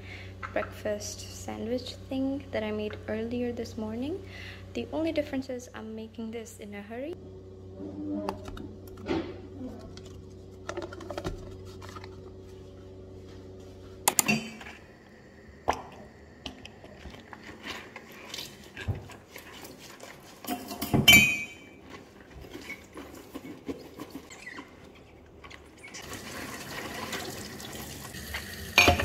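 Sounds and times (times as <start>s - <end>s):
steady low hum: 0.0s - 22.4s
ceramic cups clinking: 20.5s - 21.7s, 28.8s - 29.0s.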